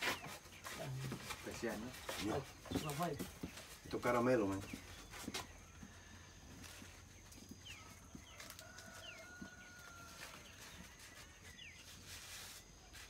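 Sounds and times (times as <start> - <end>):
dry leaves clicking: 6.5 - 12.6.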